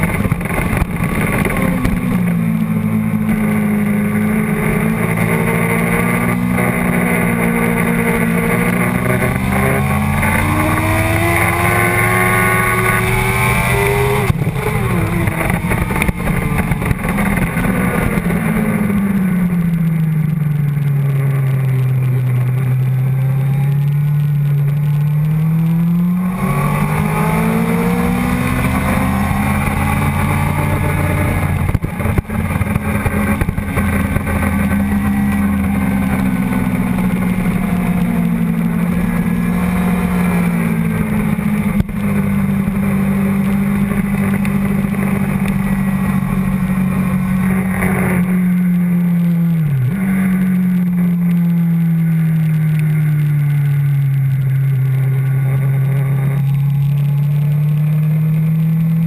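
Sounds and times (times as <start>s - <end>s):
wind rush: 0.0s - 19.8s, 25.7s - 48.6s
motorcycle engine revving: 0.0s - 59.0s.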